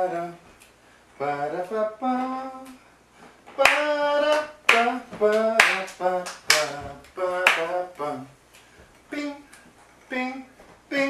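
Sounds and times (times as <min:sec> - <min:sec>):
hand claps: 0:03.5 - 0:08.7
person scat-singing: 0:09.1 - 0:11.0.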